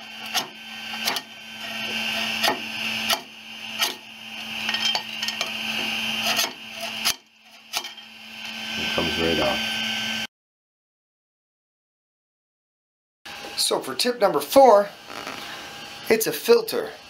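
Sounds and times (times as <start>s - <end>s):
metal spatula scraping metal bed: 0.0s - 8.6s
steady low hum: 0.0s - 10.3s.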